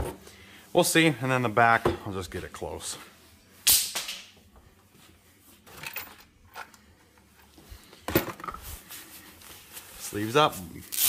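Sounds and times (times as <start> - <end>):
objects clattering on a workbench: 0.0 - 0.2, 5.6 - 8.7.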